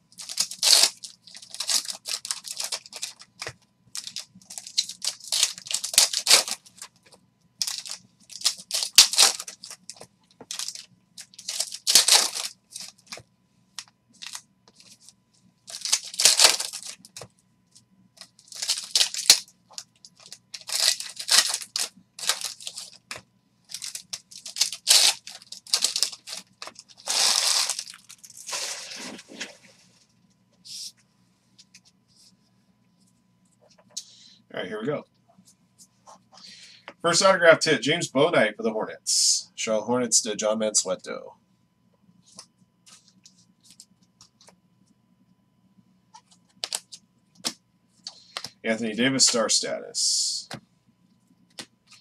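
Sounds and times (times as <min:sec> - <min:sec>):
foil wrappers crinkling and tearing: 0:00.2 - 0:07.0, 0:07.6 - 0:13.2, 0:14.2 - 0:15.1, 0:15.7 - 0:17.3, 0:18.2 - 0:29.5, 0:46.6 - 0:47.0.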